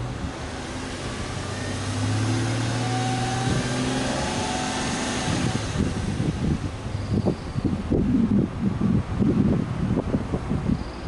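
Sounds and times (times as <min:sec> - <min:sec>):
car engine exhaust revving: 0:00.0 - 0:08.7.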